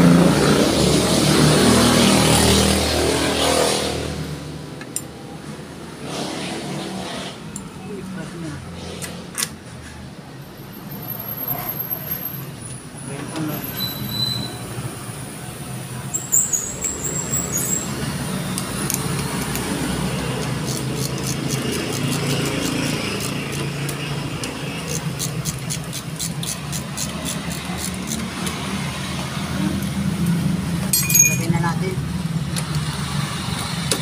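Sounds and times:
wrench clicking: 0:18.5 - 0:28.6.

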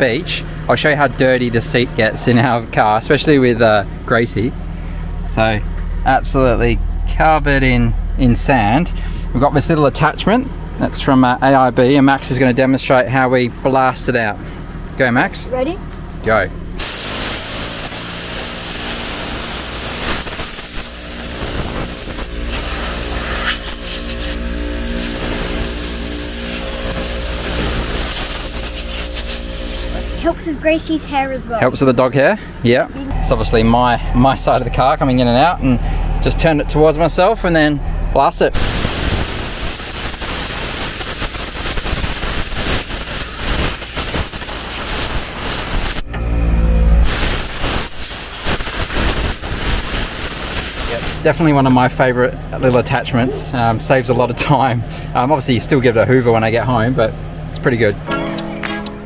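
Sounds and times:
motor hum: 0:00.0 - 0:50.9
compressed air hissing: 0:16.8 - 0:30.4, 0:38.5 - 0:46.1, 0:47.0 - 0:51.3.

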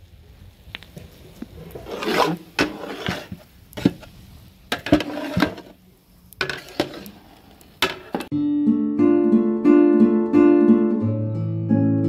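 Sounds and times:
spoon scraping through chilli: 0:01.7 - 0:04.1, 0:04.7 - 0:05.8, 0:06.4 - 0:07.4.

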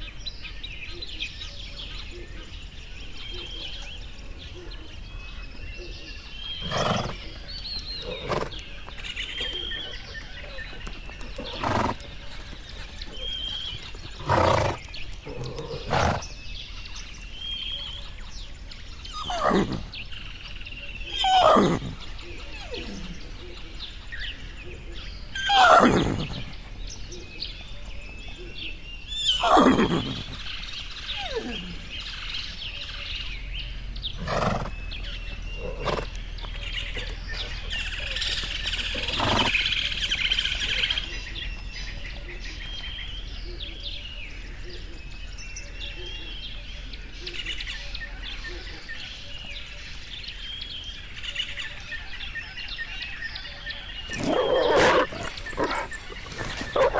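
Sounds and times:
birds chirping: 0:00.0 - 0:56.9
horses whinnying: 0:06.6 - 0:07.3, 0:08.0 - 0:08.7, 0:11.2 - 0:12.1, 0:14.2 - 0:16.3, 0:19.1 - 0:19.9, 0:21.1 - 0:22.0, 0:25.3 - 0:26.6, 0:29.2 - 0:30.5, 0:31.1 - 0:31.9, 0:34.2 - 0:34.8, 0:35.6 - 0:36.2, 0:37.9 - 0:40.2, 0:54.1 - 0:56.9.

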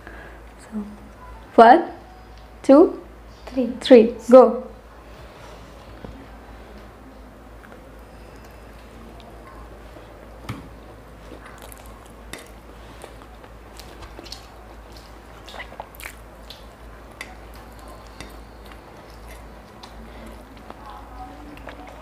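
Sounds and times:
people chewing: 0:05.0 - 0:22.0.

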